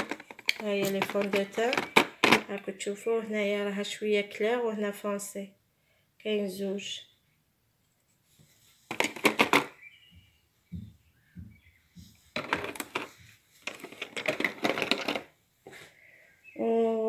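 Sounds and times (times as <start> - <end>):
plastic case clicking and rattling: 0.0 - 2.7, 8.9 - 9.8, 12.4 - 15.3
soft low thumps: 10.1 - 12.4.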